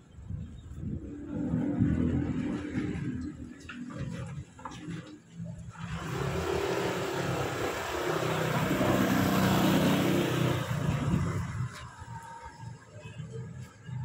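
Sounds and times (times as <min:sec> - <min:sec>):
scooter engine passing by: 0:05.8 - 0:12.5.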